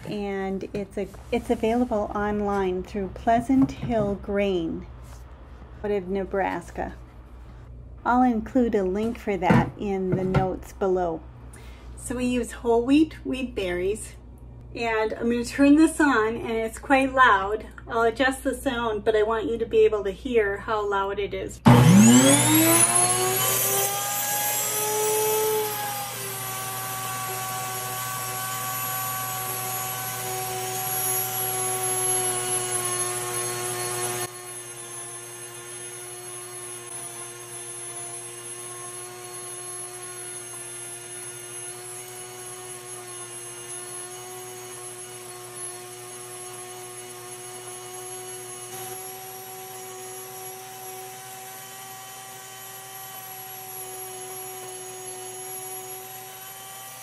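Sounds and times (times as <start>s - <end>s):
grain mill grinding: 21.7s - 57.0s.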